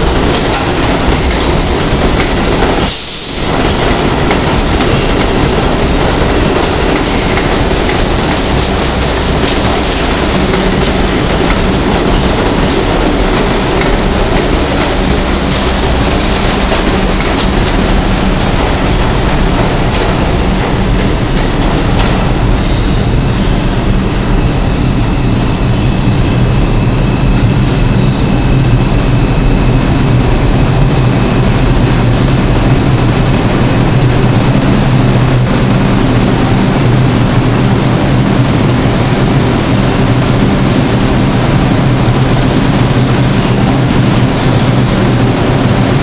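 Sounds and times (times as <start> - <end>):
high whine: 0.0 - 46.0
subway train rumbling on rails: 0.0 - 46.0.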